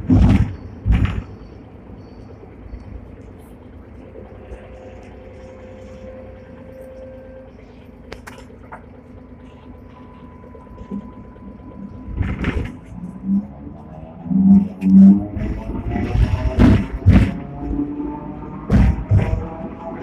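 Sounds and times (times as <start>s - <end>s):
faint steady tones: 0.0s - 20.0s
tram low rumble: 0.0s - 20.0s.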